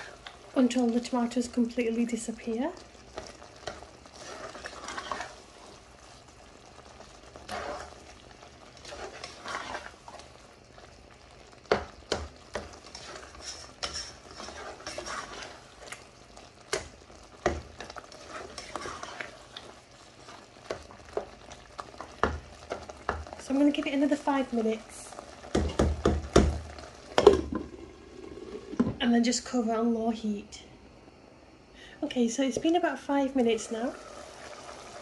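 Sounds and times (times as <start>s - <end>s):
light sizzle: 0.0s - 35.0s
spoon stirring and scraping: 3.1s - 6.2s, 7.3s - 10.3s, 11.7s - 23.4s
spoon knocking against pan: 11.7s - 12.7s, 25.5s - 26.6s.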